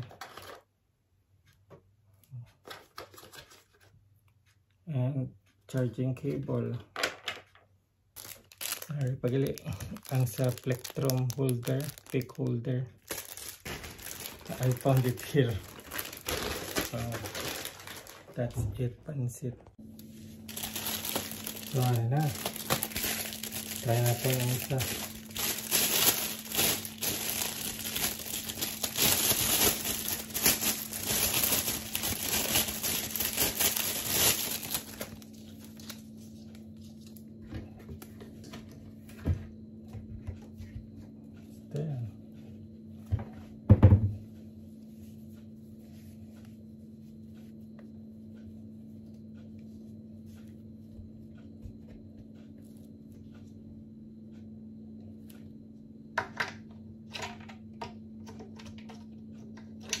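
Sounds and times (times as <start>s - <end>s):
faint steady hum: 0.0s - 60.0s
packaging crinkling: 8.2s - 18.6s, 20.0s - 36.1s.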